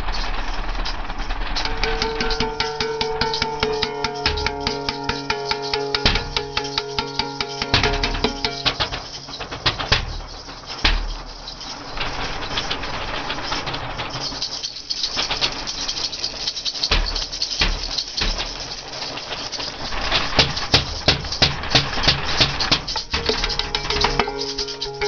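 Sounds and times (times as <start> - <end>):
harsh noise music: 1.7 - 10.3
low thumps: 1.7 - 11.4.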